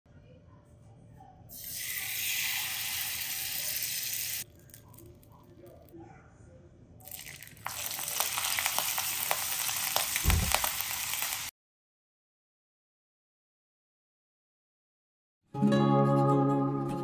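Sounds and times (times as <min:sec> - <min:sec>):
hot oil sizzling and popping: 0:01.5 - 0:04.5, 0:07.0 - 0:11.5.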